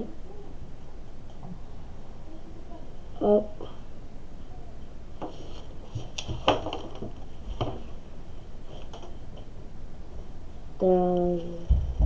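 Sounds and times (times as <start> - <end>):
paper and clipboard knocks: 6.0 - 7.8.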